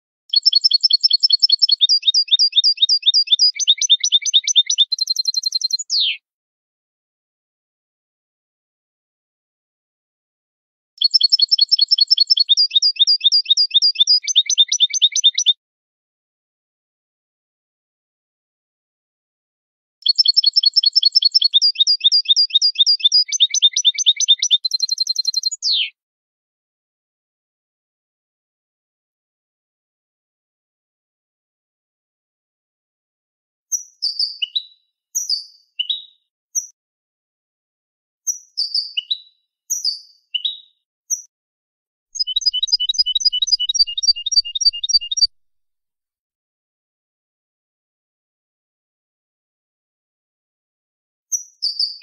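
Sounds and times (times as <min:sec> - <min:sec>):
goldfinch singing: 0:00.3 - 0:06.2, 0:11.0 - 0:15.5, 0:20.0 - 0:25.6, 0:42.2 - 0:45.3.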